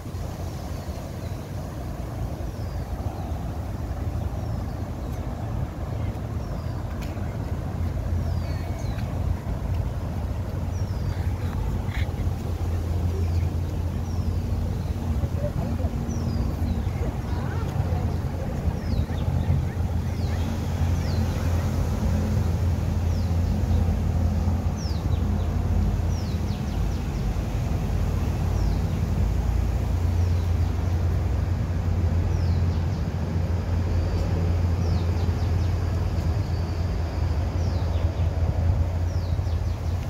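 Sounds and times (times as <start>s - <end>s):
city traffic rumble: 0.0s - 40.0s
birds chirping: 0.1s - 31.1s.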